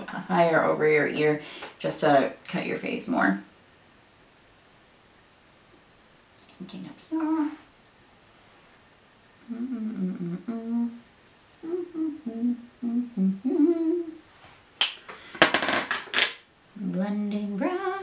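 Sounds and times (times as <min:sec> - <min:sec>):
woman humming: 0:06.6 - 0:07.6, 0:09.4 - 0:14.2.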